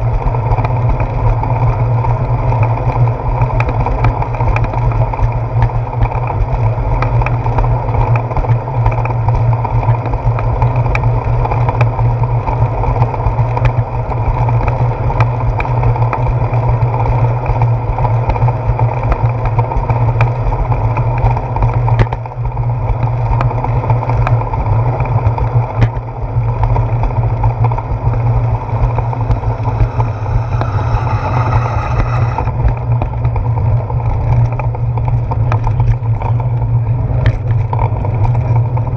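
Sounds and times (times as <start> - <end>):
bicycle ride and wind rumble: 0.0 - 38.9
passing vehicle hiss: 28.4 - 32.6.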